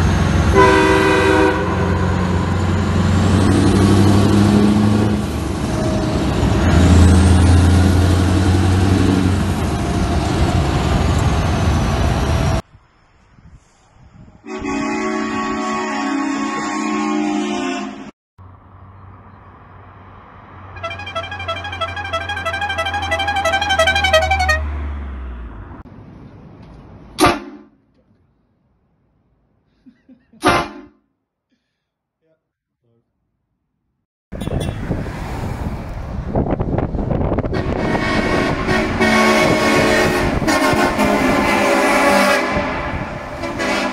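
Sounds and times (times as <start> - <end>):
musical car horn tune: 0.5 - 2.4, 14.4 - 18.1, 20.7 - 24.7, 37.5 - 43.9
loud horn blast: 0.5 - 2.9, 14.4 - 18.1, 20.6 - 24.9, 37.4 - 43.9
wind rumble on microphone: 12.3 - 14.7, 34.4 - 41.6, 42.3 - 43.7.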